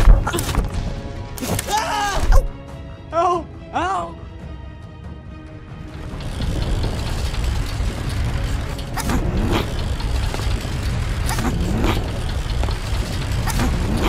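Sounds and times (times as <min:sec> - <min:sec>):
steady low rumble: 0:05.6 - 0:14.0.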